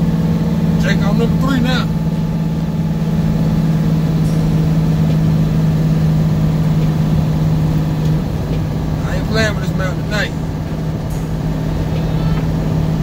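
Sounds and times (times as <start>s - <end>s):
diesel engine brake drone: 0.0s - 13.0s.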